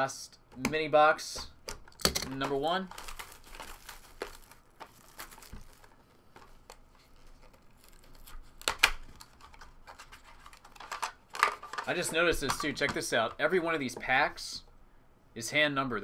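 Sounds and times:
wrapping rustling and crinkling: 1.8s - 13.8s
tearing rustle: 2.9s - 10.7s.

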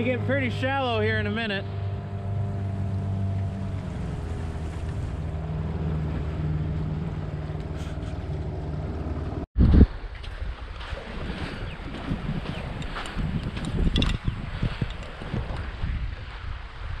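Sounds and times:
motorboat engine running: 0.0s - 9.5s, 10.8s - 16.3s
water splashing: 0.0s - 17.0s
wind: 0.0s - 17.0s.

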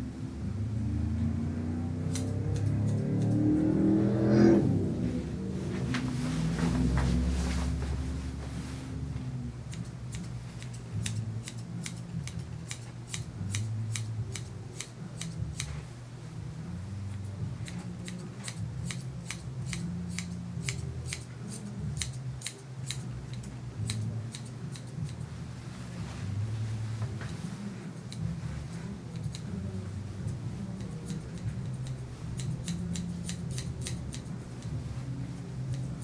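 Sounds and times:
low hum: 0.0s - 36.0s
shears snipping hair: 2.0s - 4.0s, 9.7s - 15.8s, 17.1s - 25.3s, 26.2s - 36.0s.

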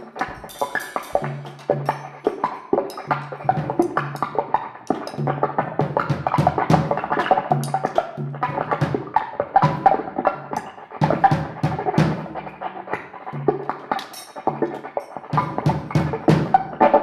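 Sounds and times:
percussive music with bass notes: 0.0s - 17.0s.

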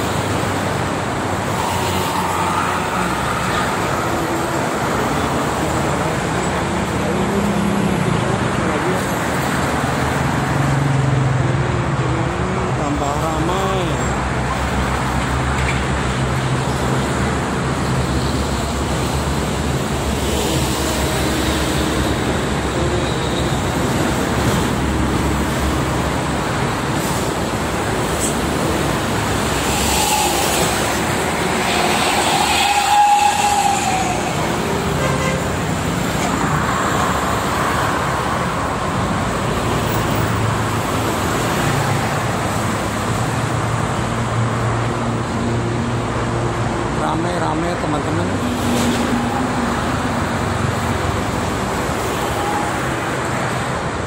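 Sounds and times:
dense highway traffic roar: 0.0s - 54.0s
vehicle horn: 31.7s - 35.6s.

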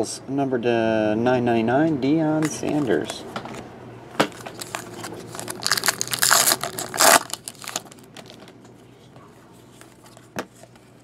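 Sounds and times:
cards being handled: 4.2s - 8.6s
foil pack crinkling and tearing: 4.3s - 8.5s.

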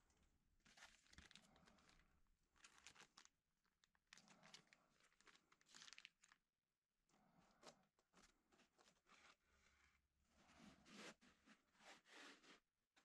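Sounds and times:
plastic bag crinkling: 0.7s - 6.4s.

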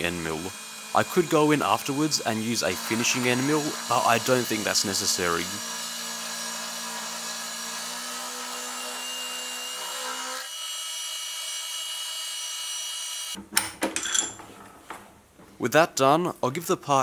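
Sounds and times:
milling machine whine: 0.0s - 10.0s.

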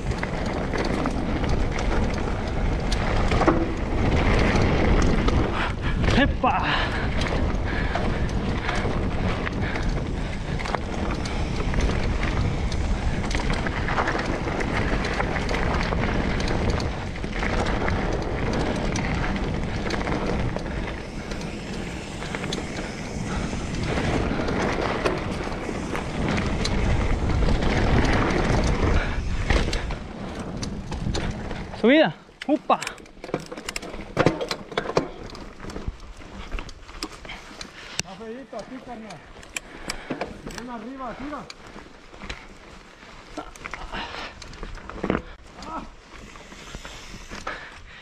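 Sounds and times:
wind rushing over microphone: 0.0s - 32.4s
bike clicks and rattles: 0.0s - 48.0s
tyres running over dirt: 0.0s - 48.0s.

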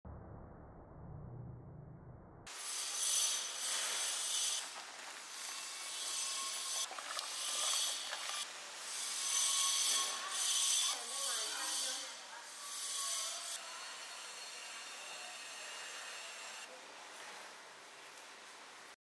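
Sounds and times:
low hum: 0.0s - 2.5s.

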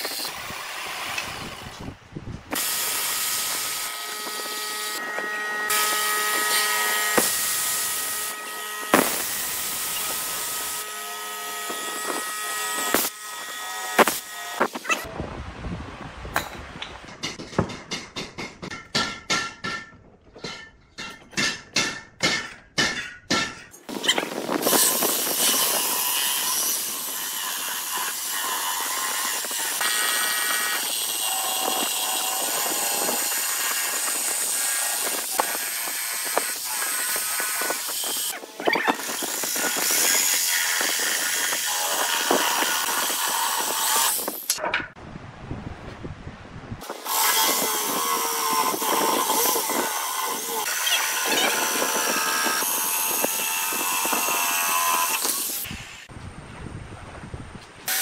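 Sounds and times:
electric jigsaw cutting wood: 2.6s - 15.1s, 24.6s - 44.5s, 46.9s - 55.7s.

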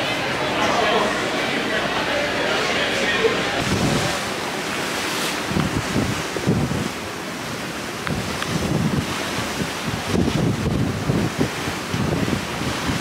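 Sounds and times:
wind buffeting microphone: 3.4s - 13.0s.

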